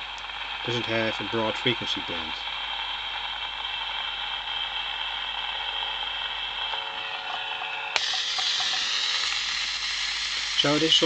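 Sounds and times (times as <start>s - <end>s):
steady hiss from loudspeaker: 0.0s - 2.6s, 10.4s - 11.0s
faint hum: 0.0s - 11.0s.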